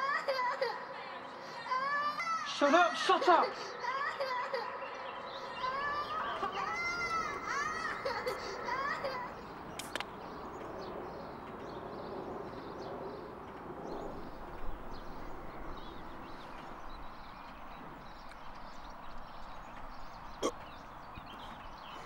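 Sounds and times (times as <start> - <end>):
steady outdoor hiss: 0.0 - 22.0
small bird chirps: 4.8 - 22.0.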